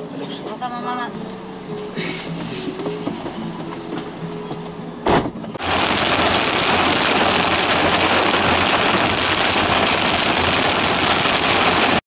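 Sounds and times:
heavy rain on car roof: 5.6s - 12.0s.

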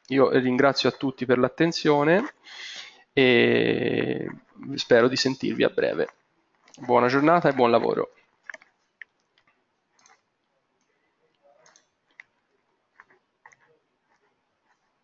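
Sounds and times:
faint irregular clicks: 4.2s - 15.0s.

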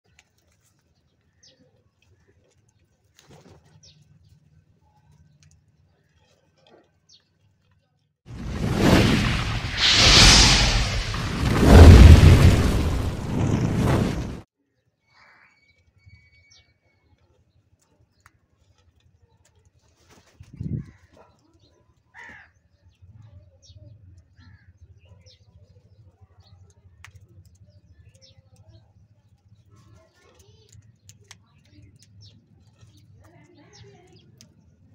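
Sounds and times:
crows calling: 22.2s - 22.6s.

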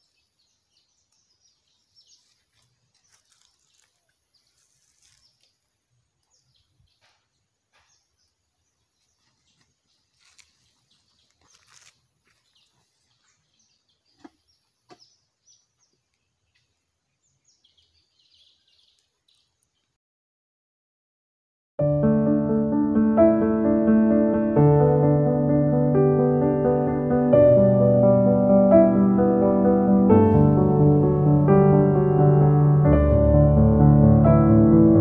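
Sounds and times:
faint birds chirping: 0.0s - 20.0s.

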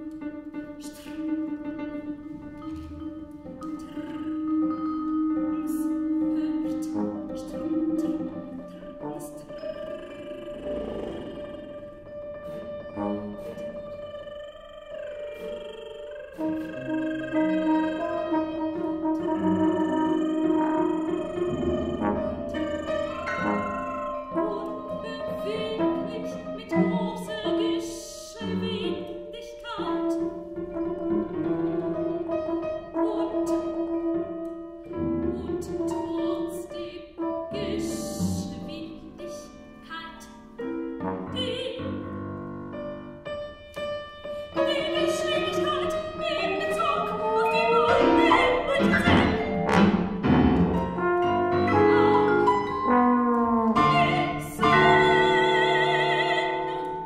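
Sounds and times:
bowed cello: 0.0s - 57.0s.

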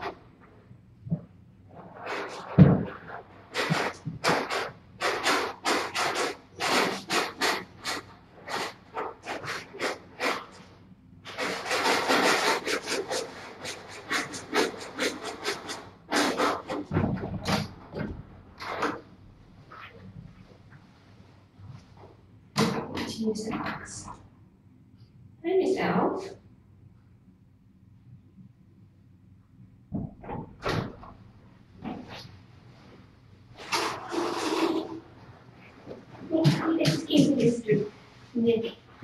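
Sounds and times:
rasping scrapes: 1.7s - 19.1s, 33.6s - 38.0s.

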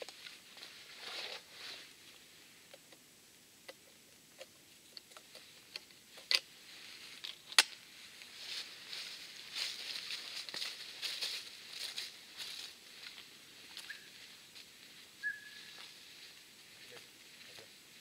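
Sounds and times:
footsteps on forest track: 6.7s - 18.0s.

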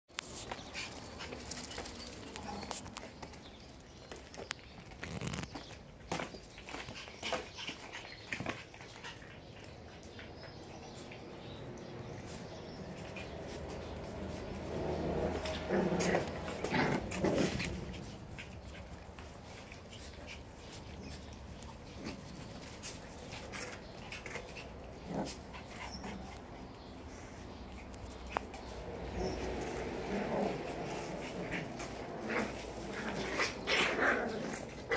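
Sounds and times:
puppies growling and yipping: 6.7s - 26.8s, 27.5s - 34.9s.

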